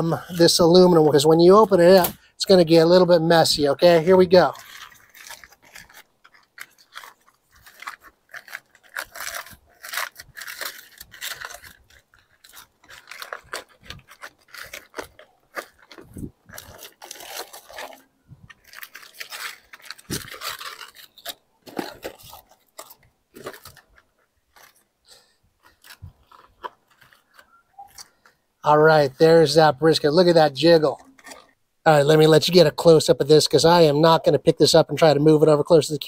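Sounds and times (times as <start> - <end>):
aluminum foil crinkling: 3.8 - 28.4, 29.4 - 31.6.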